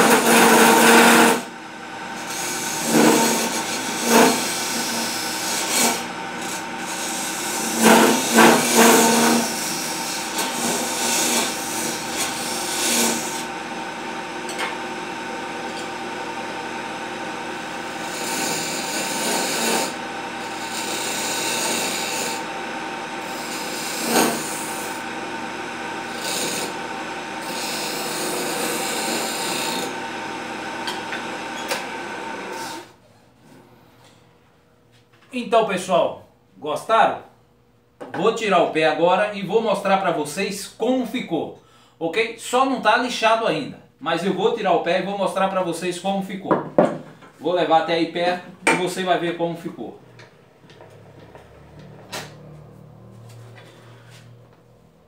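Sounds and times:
chisel cutting spinning wood: 0.0 - 32.9
lathe motor hum: 0.0 - 32.9, 50.0 - 54.8.

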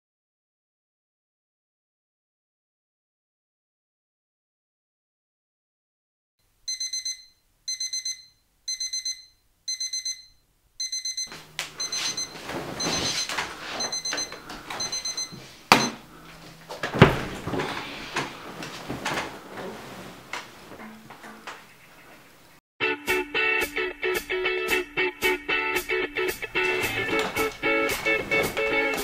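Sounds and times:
alarm clock beeping: 6.7 - 16.1
rustling and movement: 11.3 - 22.6, 26.5 - 29.0.

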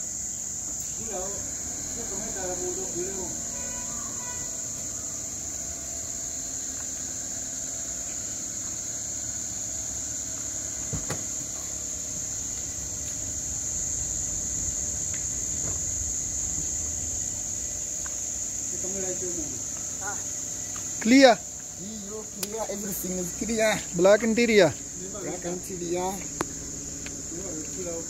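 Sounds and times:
crickets trilling: 0.0 - 28.0
low rumble: 13.2 - 19.8.

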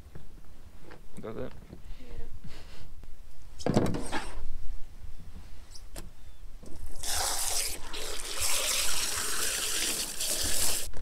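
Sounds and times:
running water hissing: 6.8 - 10.9.

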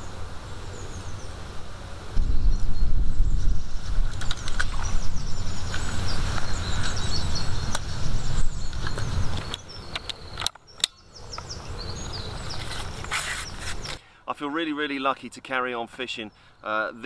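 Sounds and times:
small birds chirping: 0.0 - 17.0
wind rumbling on microphone: 2.0 - 10.4.

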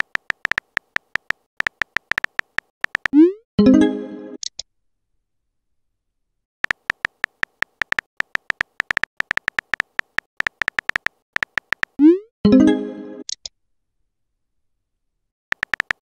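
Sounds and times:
synthetic keyboard tap clicks: 0.0 - 3.3, 6.6 - 12.1, 15.5 - 16.0.

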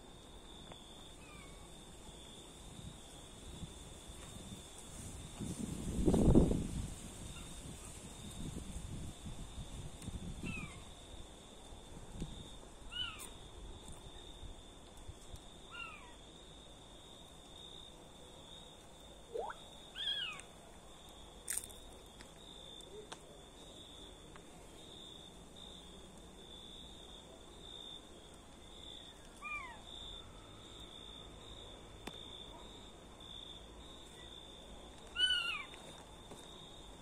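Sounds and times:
insect trill: 15.5 - 22.9, 23.6 - 37.0
animal high calls: 19.4 - 20.4, 35.2 - 35.7.

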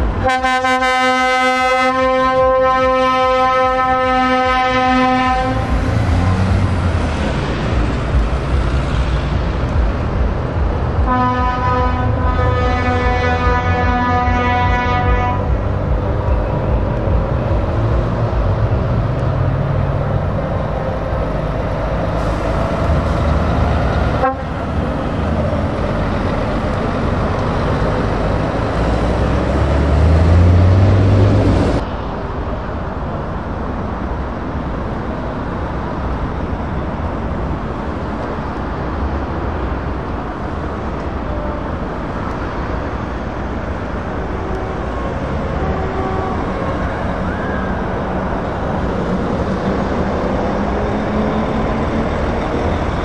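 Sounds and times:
road noise: 0.0 - 53.0
air horn: 0.2 - 5.6, 11.1 - 15.6, 24.2 - 24.6, 44.5 - 47.6
truck diesel engines pulling away: 1.4 - 53.0
truck engine revving: 3.4 - 31.8.

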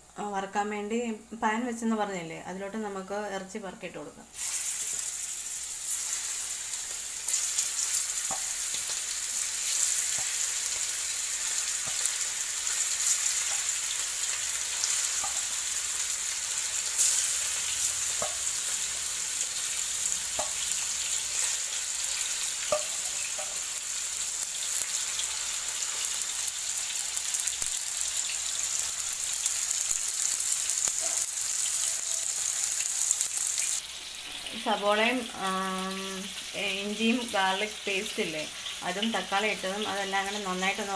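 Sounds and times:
oil crackling and popping: 4.4 - 33.9
chicken frying in oil: 4.4 - 40.9.

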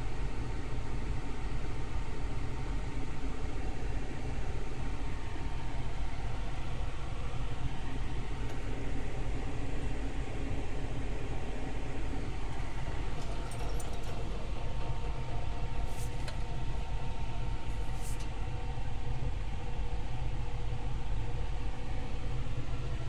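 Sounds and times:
faint steady whine: 0.0 - 23.0
low mechanical rumble: 0.0 - 23.0.

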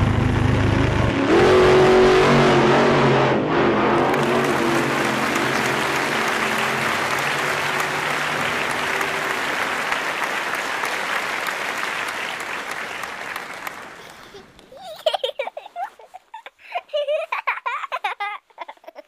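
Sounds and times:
hands clapping: 4.0 - 14.7.

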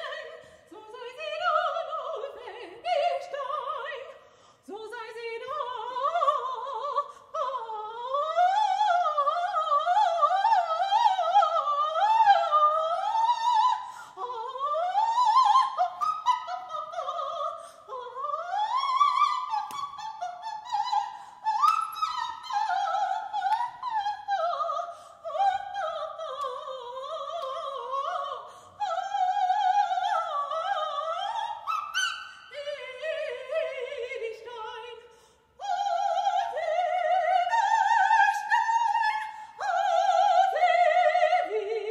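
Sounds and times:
woman singing opera: 0.0 - 41.9.

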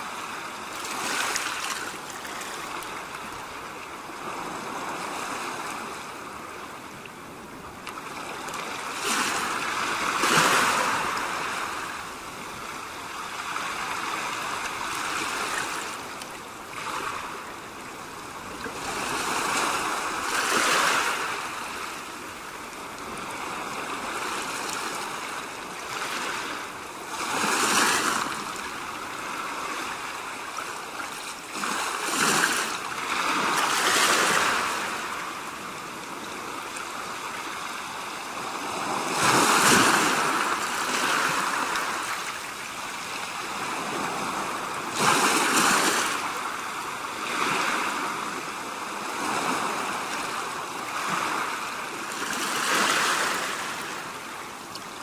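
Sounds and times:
waves washing against rocks: 18.7 - 22.0, 31.5 - 35.4, 38.3 - 54.1.

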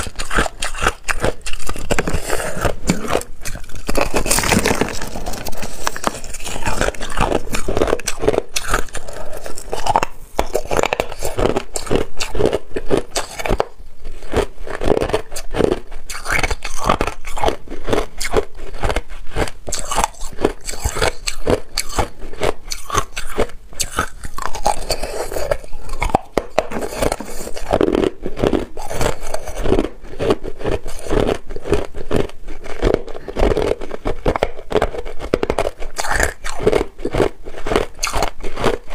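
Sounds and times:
chewing crunchy ice: 0.0 - 38.9.

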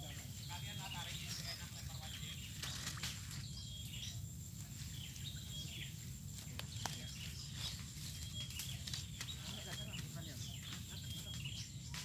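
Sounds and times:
high wildlife chirps: 0.0 - 12.0
footsteps in dry leaf litter: 1.1 - 3.6, 6.2 - 12.0.

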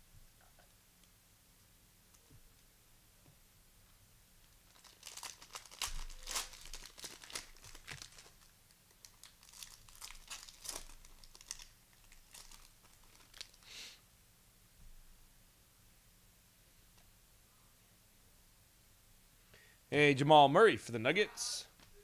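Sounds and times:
cellophane wrapper crinkling: 4.5 - 13.7.

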